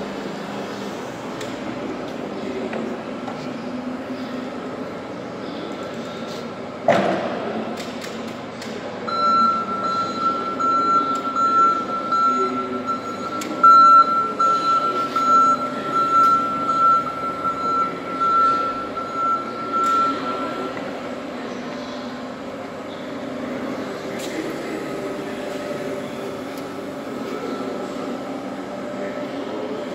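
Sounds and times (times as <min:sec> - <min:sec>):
electric forklift moving: 0:09.0 - 0:29.9
high-pitched warning tone: 0:09.1 - 0:20.8.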